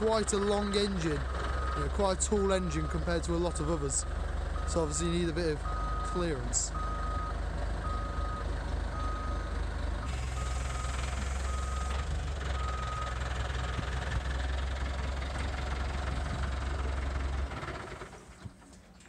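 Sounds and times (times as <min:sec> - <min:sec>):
diesel engine running: 0:00.0 - 0:18.7
reversing alarm beeps: 0:02.4 - 0:05.0, 0:05.6 - 0:08.4, 0:09.0 - 0:09.4, 0:10.3 - 0:12.0, 0:12.6 - 0:13.2.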